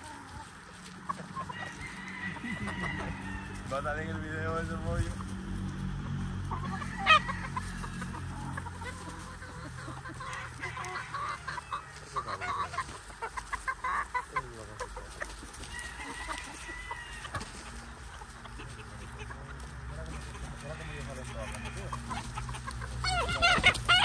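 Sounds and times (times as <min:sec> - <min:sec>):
chickens clucking: 0:00.0 - 0:24.0
loud chicken call: 0:01.1 - 0:03.7, 0:06.4 - 0:14.6, 0:15.6 - 0:17.8, 0:20.4 - 0:24.0.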